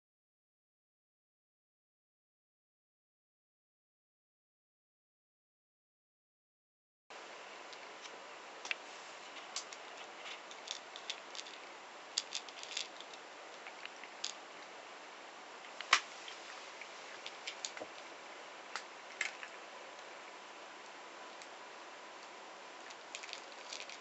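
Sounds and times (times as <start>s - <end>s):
cat crunching dry kibble: 7.8s - 14.5s, 15.9s - 18.1s, 22.8s - 24.0s.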